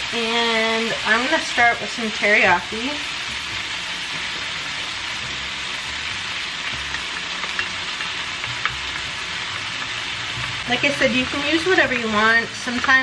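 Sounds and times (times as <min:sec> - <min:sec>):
stir-fry sizzling in skillet: 0:00.0 - 0:13.0.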